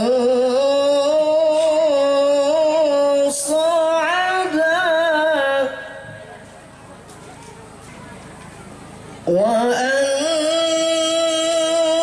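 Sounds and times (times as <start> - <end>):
man reciting melodically: 0.0 - 6.4, 9.2 - 12.0.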